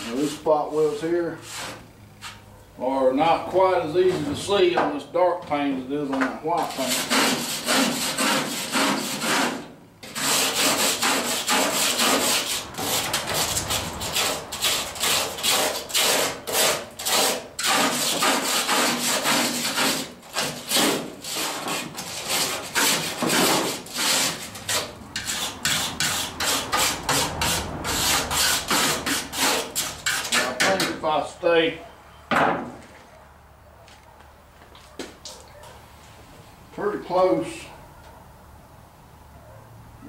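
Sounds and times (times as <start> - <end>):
hand tool scraping steel: 0.0 - 2.5, 6.5 - 31.2.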